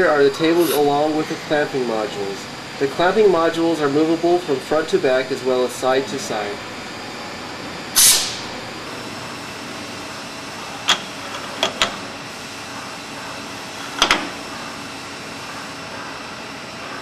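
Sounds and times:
machine-room hum: 0:00.0 - 0:17.0
short rushing hiss: 0:08.0 - 0:08.4.

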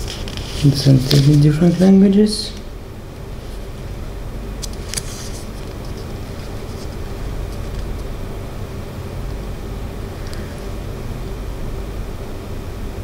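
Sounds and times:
booklet pages rustling: 0:00.0 - 0:02.0, 0:04.6 - 0:08.0.

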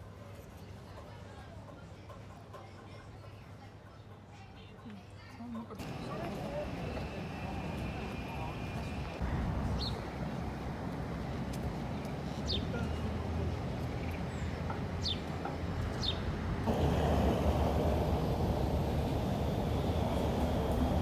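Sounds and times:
distant traffic hum: 0:05.8 - 0:21.0
loud full hum: 0:16.7 - 0:21.0.

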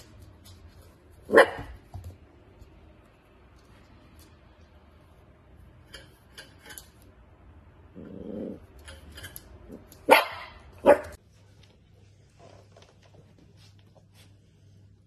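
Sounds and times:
puppy barking: 0:01.3 - 0:01.8, 0:10.0 - 0:11.2
puppy growling: 0:07.9 - 0:08.9.

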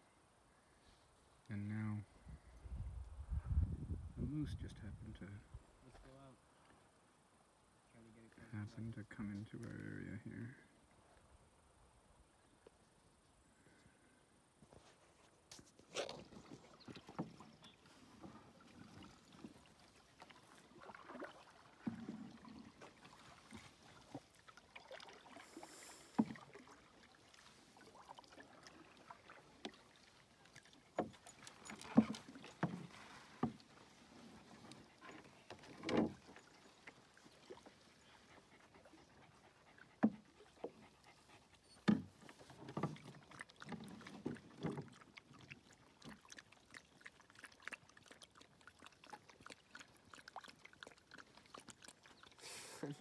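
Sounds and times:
paddle splashing water: 0:14.7 - 0:53.0
paddle knocking on hull: 0:30.9 - 0:37.0, 0:41.8 - 0:45.0.

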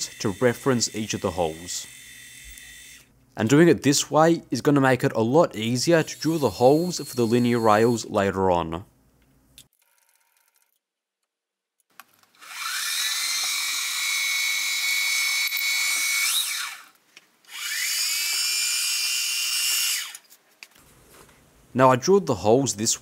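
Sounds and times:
milling spindle whine: 0:00.0 - 0:03.1.

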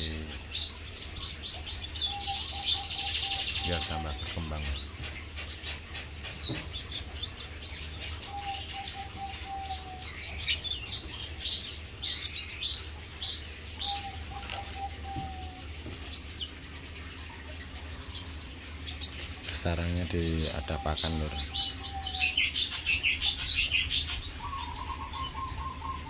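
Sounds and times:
bird twittering chirps and trills: 0:00.0 - 0:26.0.

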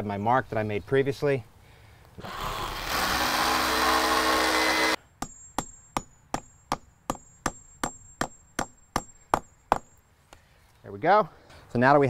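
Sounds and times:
hammer drill boring into stone: 0:02.2 - 0:05.0.

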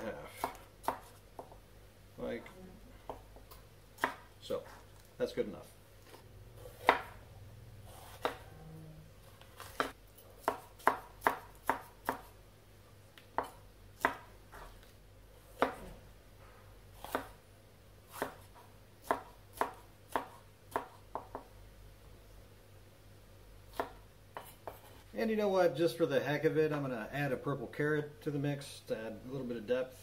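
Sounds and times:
knife chopping on wooden board: 0:00.4 - 0:01.6, 0:04.0 - 0:04.3, 0:06.1 - 0:07.2, 0:07.9 - 0:08.4, 0:09.5 - 0:12.3, 0:13.3 - 0:14.3, 0:15.6 - 0:15.9, 0:17.0 - 0:17.4, 0:18.1 - 0:21.5, 0:23.7 - 0:25.0.

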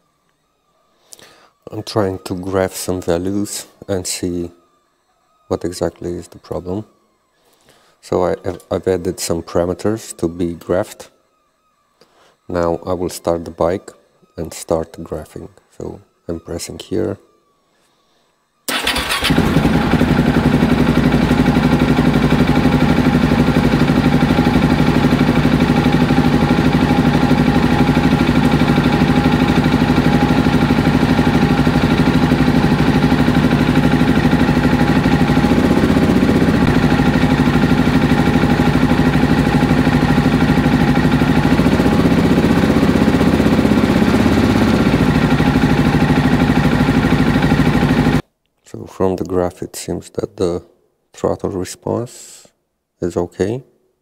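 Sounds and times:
motorcycle engine starting and idling: 0:00.1 - 0:13.8, 0:18.6 - 0:48.2.

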